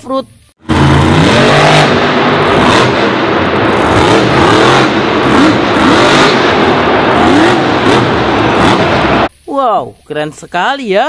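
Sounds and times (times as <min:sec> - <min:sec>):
truck engine revving: 0:00.6 - 0:09.3.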